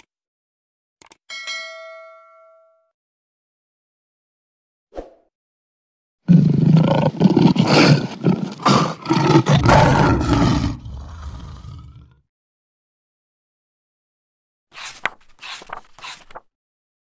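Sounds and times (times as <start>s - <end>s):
loud roaring: 6.3s - 12.2s.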